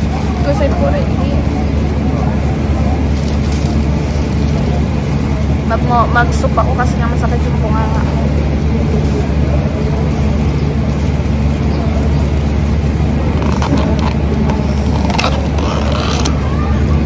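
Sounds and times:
machinery hum: 0.0 - 17.0
plastic bag crinkling: 10.2 - 16.7.

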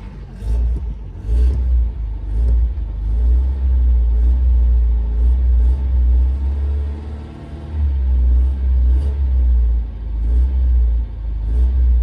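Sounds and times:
car engine running: 0.0 - 12.0.

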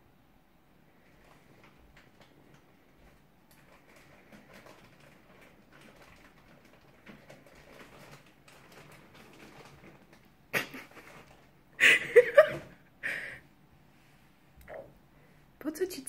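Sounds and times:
plastic bag rustling and crinkling: 0.9 - 12.8.

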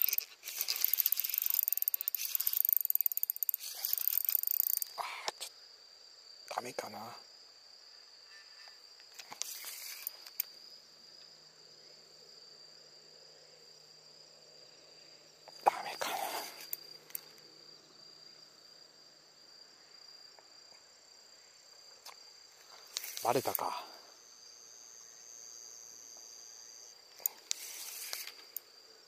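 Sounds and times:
short bursts of noise: 0.0 - 4.9, 9.2 - 10.4, 22.9 - 23.6, 27.2 - 28.6
insects chirring: 0.0 - 29.0.

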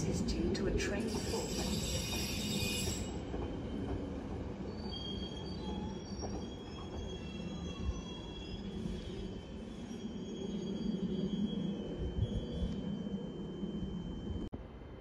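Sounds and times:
low rumble of moving train: 0.0 - 15.0
train wheels squealing on rails: 0.8 - 14.5.

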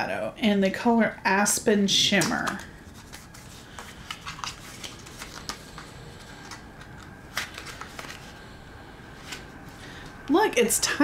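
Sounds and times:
packaging rustling: 2.4 - 9.8.

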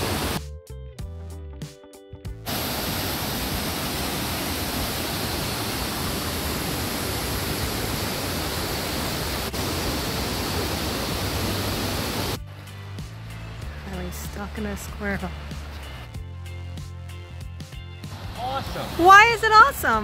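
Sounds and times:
waterfall roaring: 0.0 - 0.4, 2.5 - 12.4, 18.1 - 19.1.

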